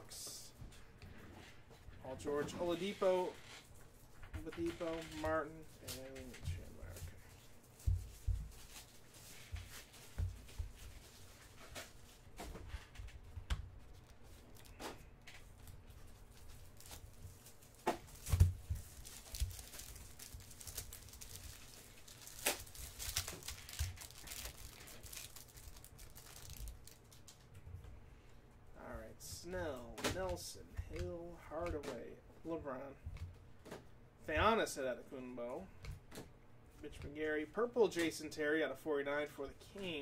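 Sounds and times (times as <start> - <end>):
foil wrapper tearing and crinkling: 16.4 - 27.4.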